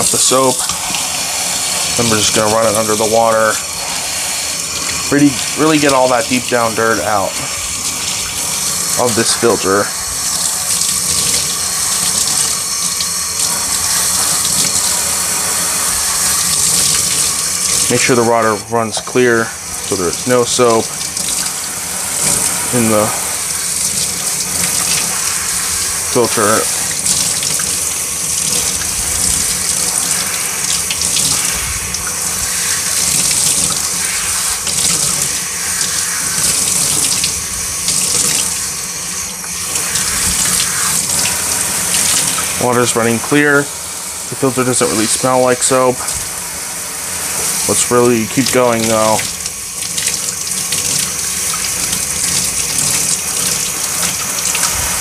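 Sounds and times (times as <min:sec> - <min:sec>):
faucet water splashing: 0:00.0 - 0:55.0.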